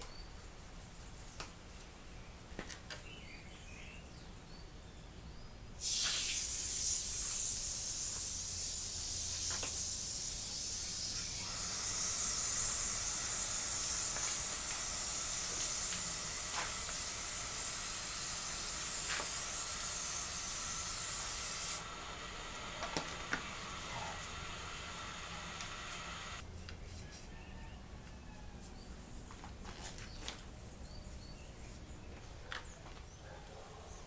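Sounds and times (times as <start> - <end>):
hose spraying water: 5.8 - 26.4.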